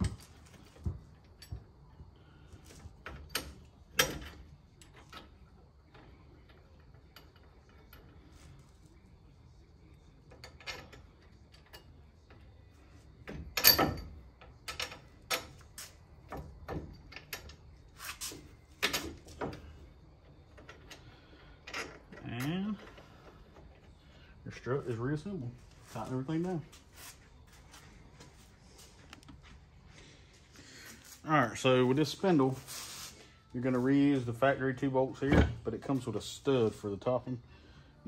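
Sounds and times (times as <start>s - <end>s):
metallic clinks of bolts and tools: 3.0s - 5.4s, 6.0s - 8.5s, 10.3s - 12.5s, 13.3s - 15.7s, 18.7s - 19.8s.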